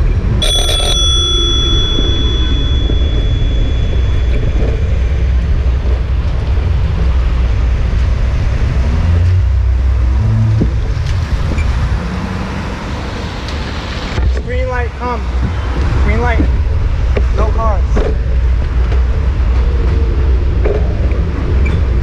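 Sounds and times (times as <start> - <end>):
wind on microphone: 0.0 - 12.3
traffic rumble: 0.0 - 22.0
bicycle bell ringing: 0.4 - 6.5.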